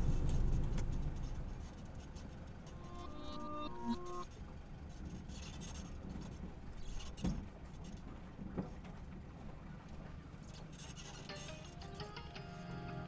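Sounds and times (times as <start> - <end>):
diesel engine rumble: 0.0 - 4.8
road noise: 2.6 - 4.3.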